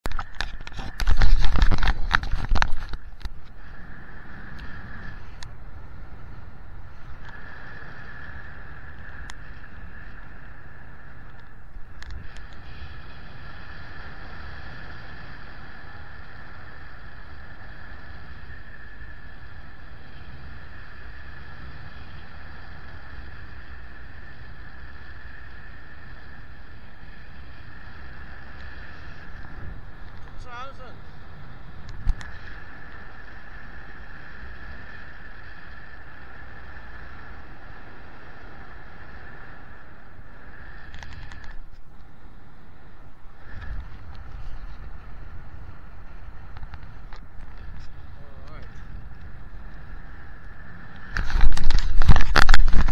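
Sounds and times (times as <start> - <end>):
wind rushing over microphone: 0.0 - 52.9.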